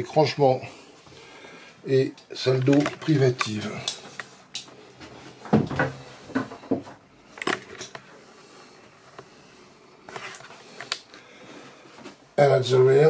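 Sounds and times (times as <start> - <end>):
light knocks and bumps: 5.0 - 7.0.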